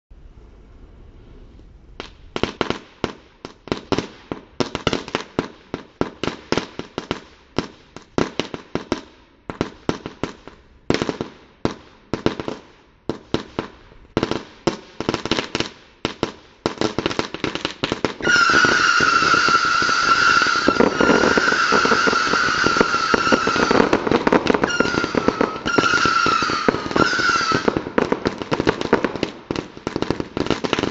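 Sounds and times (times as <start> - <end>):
firework rockets popping: 2.0 - 30.9
shrill firework whistle: 18.2 - 27.9.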